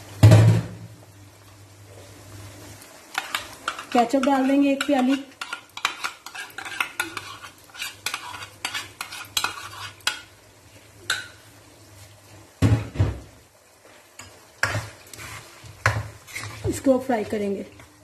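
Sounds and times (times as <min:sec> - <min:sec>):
food sizzling: 0:00.0 - 0:18.0
spatula scraping a wok: 0:03.1 - 0:10.4, 0:14.2 - 0:17.5.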